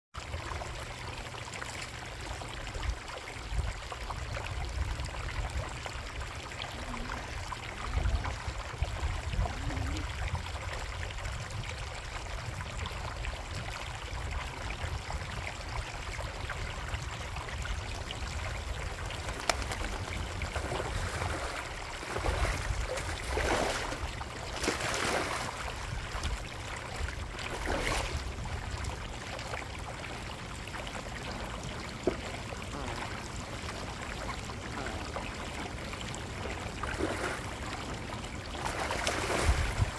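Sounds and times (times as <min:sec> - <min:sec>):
water trickling in a pond: 0:00.2 - 0:39.9
water splashing: 0:17.3 - 0:39.9.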